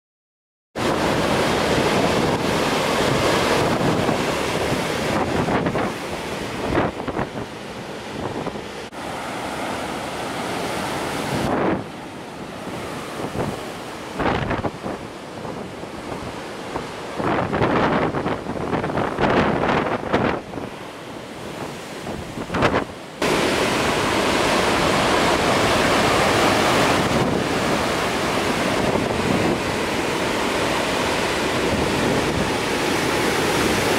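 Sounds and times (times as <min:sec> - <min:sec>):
wind buffeting microphone: 0:00.8 - 0:33.9.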